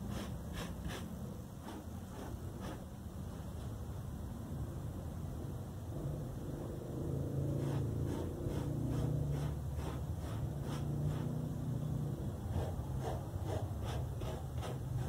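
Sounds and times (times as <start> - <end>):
scraping polystyrene foam: 0.0 - 3.8, 7.5 - 11.4, 12.5 - 15.0.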